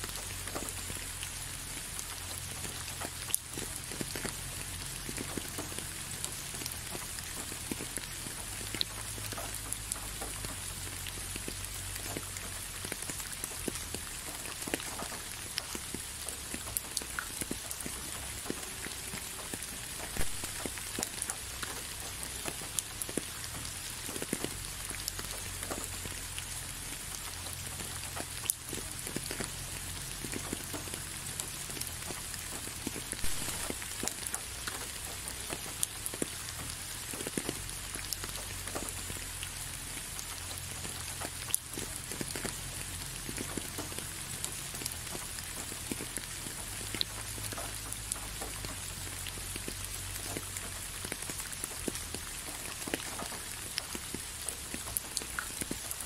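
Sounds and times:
raindrops tapping: 0.0 - 56.0
steady rain falling: 0.0 - 56.0.

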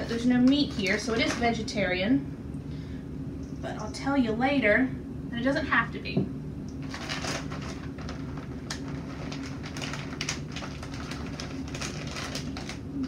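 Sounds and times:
plastic bag crinkling: 0.0 - 1.6, 6.8 - 13.0
steady low hum: 0.0 - 13.0.

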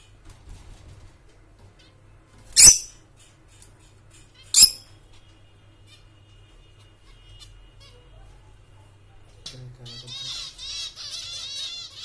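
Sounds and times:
faint bird chirps: 2.6 - 2.9, 4.4 - 4.8
lovebird shrill calls: 2.6 - 3.0, 4.6 - 4.8.

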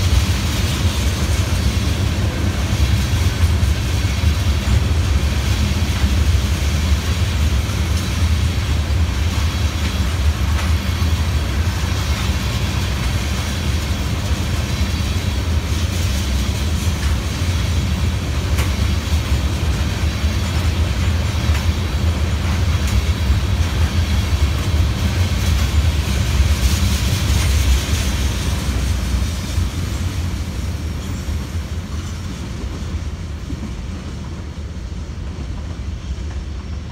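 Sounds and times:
wheels clicking over rail joints: 0.0 - 28.9
freight train rumbling past: 0.0 - 36.9.

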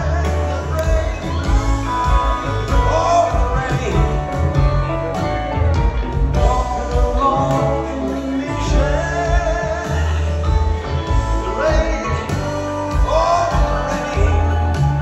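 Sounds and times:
acoustic guitar: 0.0 - 15.0
drums: 0.0 - 15.0
keyboards: 0.0 - 15.0.

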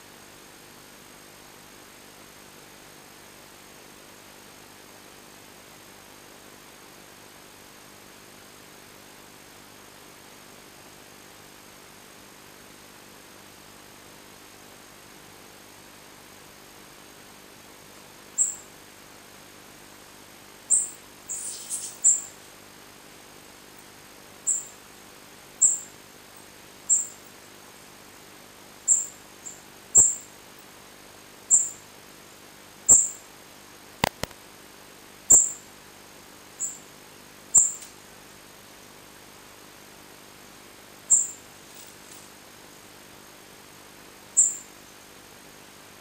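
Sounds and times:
nestlings peeping: 18.4 - 18.7, 20.7 - 22.5, 24.4 - 24.8, 25.6 - 26.0, 26.9 - 27.3, 28.9 - 30.3, 31.5 - 31.8, 32.9 - 33.2, 35.3 - 35.6, 36.6 - 36.8, 37.5 - 37.9, 41.1 - 41.4, 44.4 - 44.7
buzzy bird call: 20.7 - 22.4
sharp click: 34.0 - 34.4.

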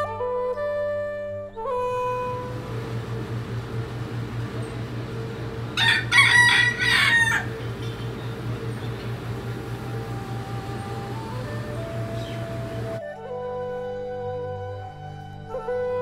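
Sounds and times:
steady low hum: 2.0 - 13.0
rooster crowing: 5.1 - 13.0.

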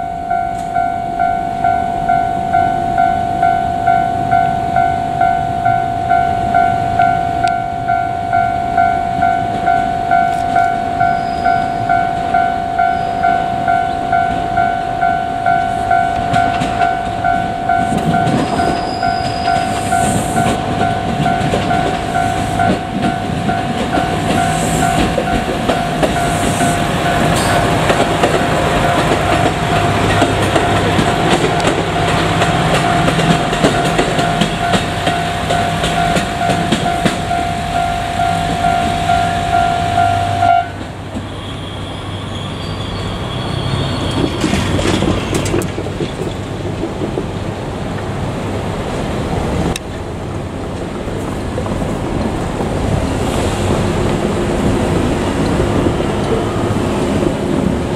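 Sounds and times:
level crossing bell ringing: 0.0 - 27.9, 28.7 - 40.7
diesel railcar engine rumbling: 0.0 - 57.9.

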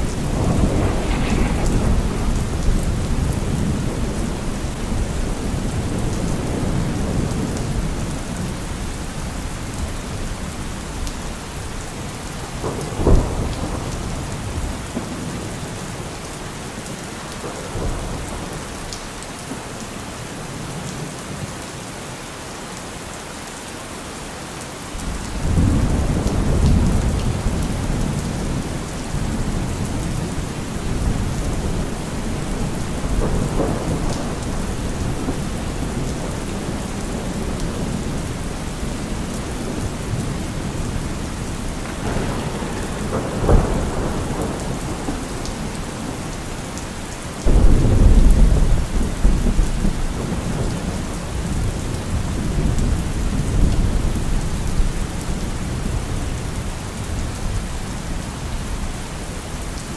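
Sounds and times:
thunder crack: 0.0 - 7.1, 41.8 - 46.3
low thunder rumble: 0.0 - 10.6, 12.4 - 16.0, 25.0 - 56.4
heavy rain: 0.0 - 59.9.

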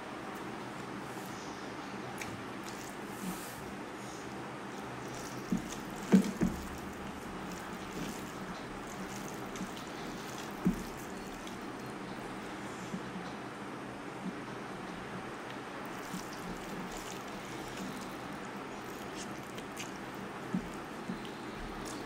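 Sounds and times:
wet squishy eating: 2.2 - 12.6, 15.5 - 22.0.

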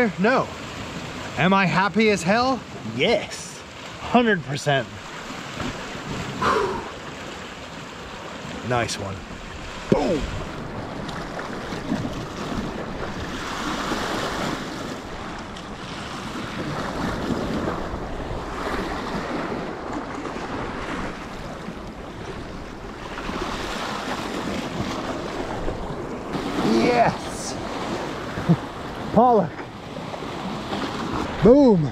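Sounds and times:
sea waves breaking: 0.0 - 31.9
wind buffeting microphone: 9.2 - 29.2.

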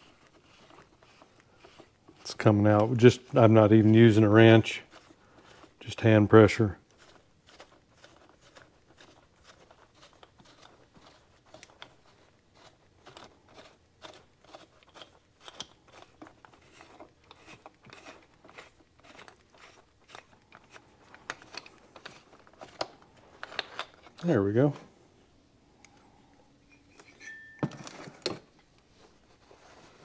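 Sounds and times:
tool clicks and creaks: 14.0 - 24.3, 26.6 - 28.8.

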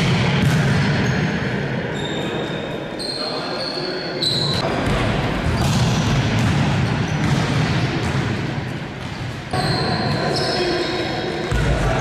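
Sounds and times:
volleyballs struck and bouncing: 0.0 - 1.4, 4.6 - 10.4, 11.3 - 12.0.

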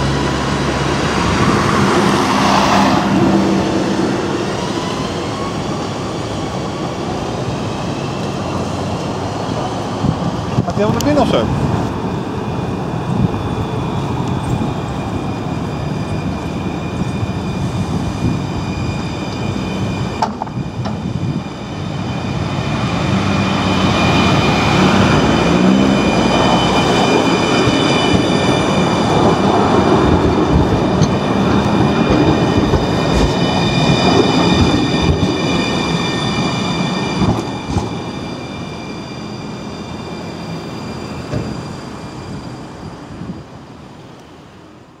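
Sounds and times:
tram rolling rumble: 0.0 - 45.0
high-pitched whine: 10.7 - 44.4
metallic clanks of wheels on rails: 19.3 - 21.1.

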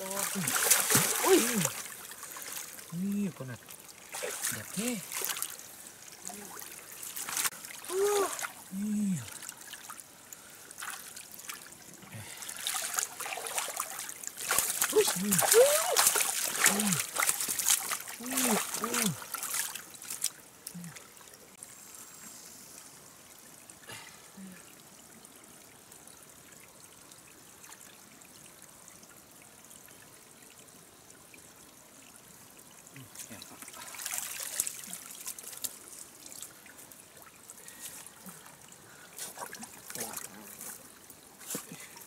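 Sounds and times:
water splashing: 0.0 - 21.1, 33.1 - 38.6, 39.2 - 42.0
water trickling: 0.0 - 42.0.

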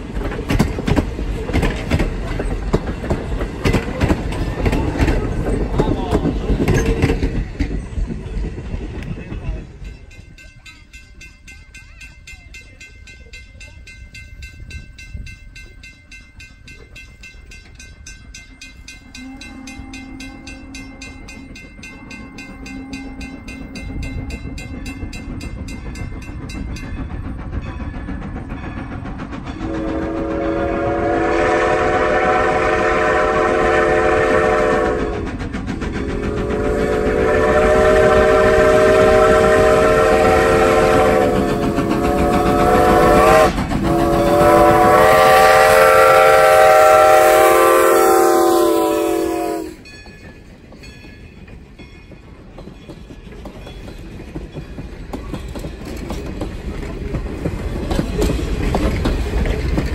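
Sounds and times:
steam locomotive running: 0.0 - 59.9
steam whistle blasts: 29.6 - 35.3, 36.0 - 49.8.

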